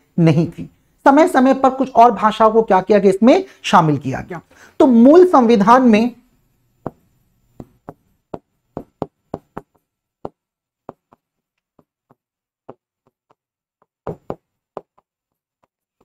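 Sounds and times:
pen tapping on writing board: 0:06.8 - 0:07.0, 0:07.6 - 0:16.0.

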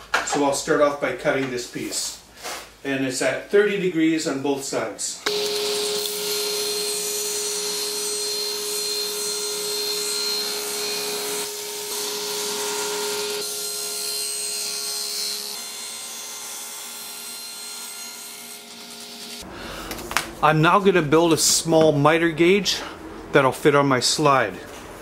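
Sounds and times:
saw cutting wood: 0:05.3 - 0:19.4
table saw motor hum: 0:05.3 - 0:19.4.

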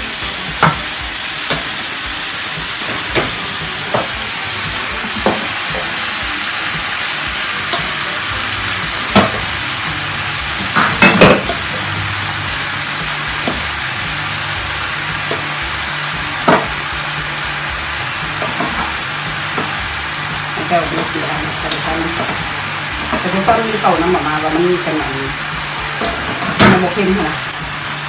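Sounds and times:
vegetables sizzling in frying pan: 0:00.0 - 0:28.0
spatula knocking on pan: 0:00.6 - 0:00.9, 0:13.3 - 0:13.8, 0:16.4 - 0:16.9.

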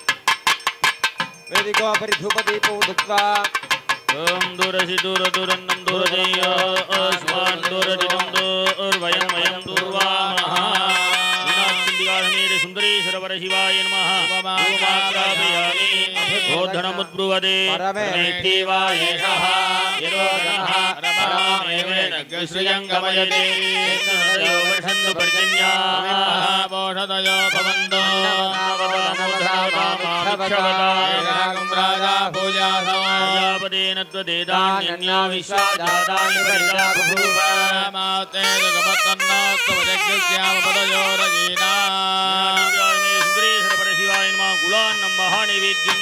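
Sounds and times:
double-reed pipe gliding melody: 0:10.2 - 0:17.0, 0:19.0 - 0:22.0, 0:23.1 - 0:26.6, 0:27.2 - 0:33.9, 0:35.5 - 0:46.0.

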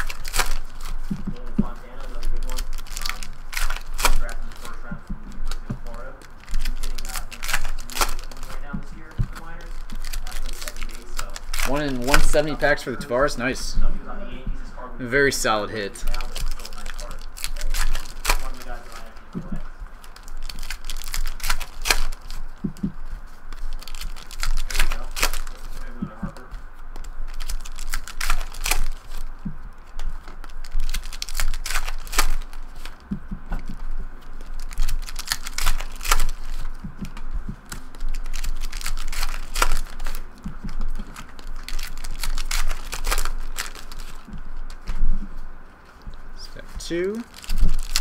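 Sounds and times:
wrapper crinkling: 0:00.0 - 0:13.7, 0:15.2 - 0:48.0
card packs clicking and tapping: 0:05.5 - 0:12.8, 0:15.4 - 0:22.9, 0:23.6 - 0:26.4, 0:34.6 - 0:44.3.

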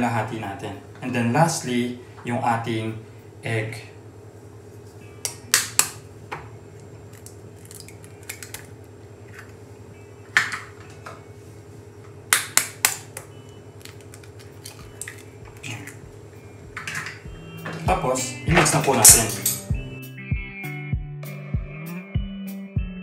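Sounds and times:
faint steady hum: 0:00.0 - 0:20.0
eggs dropping into bowl: 0:07.1 - 0:08.7, 0:13.8 - 0:16.0.

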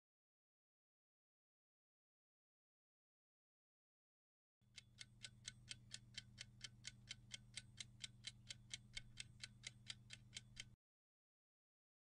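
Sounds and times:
clock ticking: 0:04.7 - 0:10.8.

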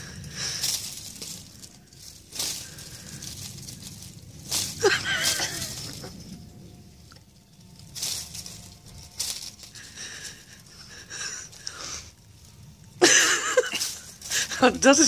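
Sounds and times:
dry leaves and cloth rustling: 0:00.0 - 0:15.0.

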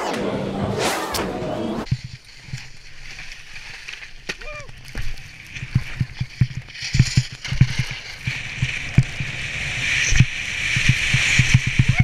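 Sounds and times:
skis hissing on snow: 0:07.8 - 0:12.0.

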